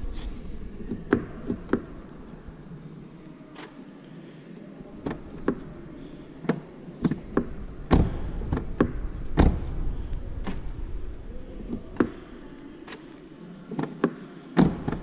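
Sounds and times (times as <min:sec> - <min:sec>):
door lock and handle clicks and clunks: 0:05.0 - 0:05.7, 0:06.4 - 0:09.8, 0:13.7 - 0:15.0.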